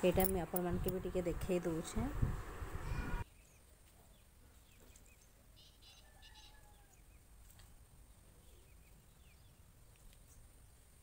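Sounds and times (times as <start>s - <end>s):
faint bird chirps: 2.9s - 7.2s.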